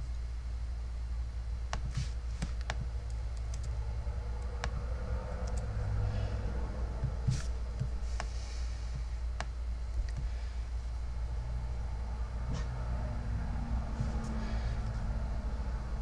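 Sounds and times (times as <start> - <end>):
low electrical hum: 0.0 - 16.0
computer mouse clicking: 1.8 - 3.8, 4.4 - 5.7.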